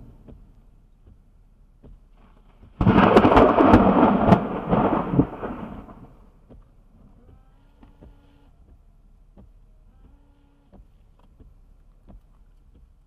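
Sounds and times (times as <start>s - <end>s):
thunderclap: 2.8s - 6.2s.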